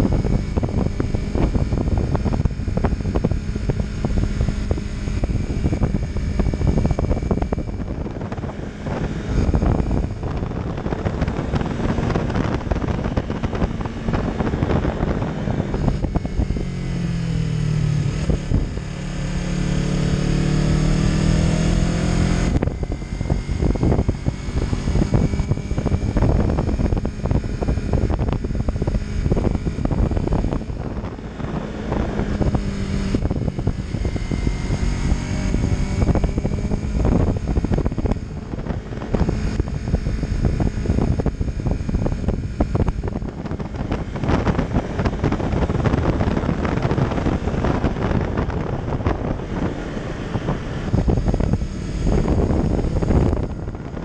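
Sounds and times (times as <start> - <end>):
motorcycle engine running: 0.0 - 54.0
wind rush on microphone: 0.0 - 54.0.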